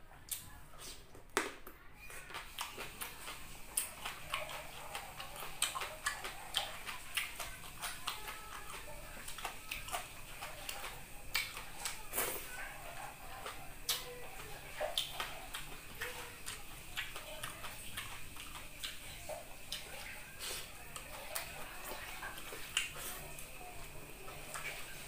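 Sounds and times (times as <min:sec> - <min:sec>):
person chewing: 0:02.0 - 0:25.0
wet mouth clicks and lip smacks: 0:11.3 - 0:12.0.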